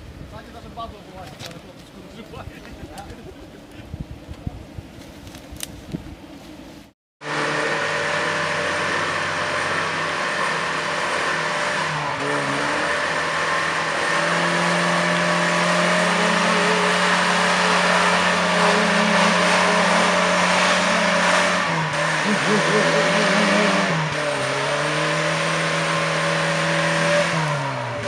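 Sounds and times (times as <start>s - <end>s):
engine revving under load: 7.2s - 28.0s.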